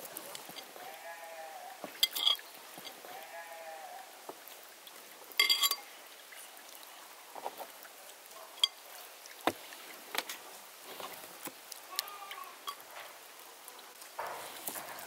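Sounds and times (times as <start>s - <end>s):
farm animal bleating: 0.6s - 1.9s, 3.0s - 4.2s, 11.9s - 12.8s.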